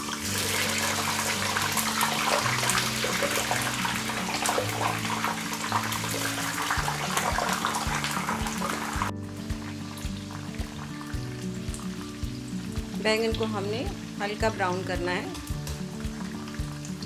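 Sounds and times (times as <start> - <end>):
vegetables deep-frying in oil: 0.0 - 17.0.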